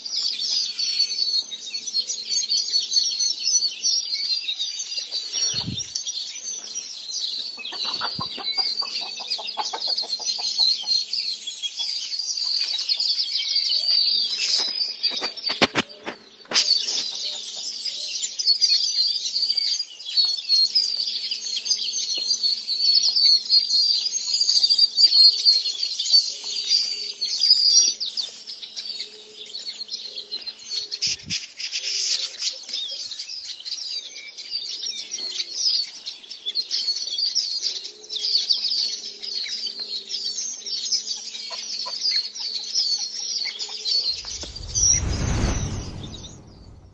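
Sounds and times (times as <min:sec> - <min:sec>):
small birds chirping: 0:00.0 - 0:46.9
chickens clucking: 0:07.6 - 0:11.0.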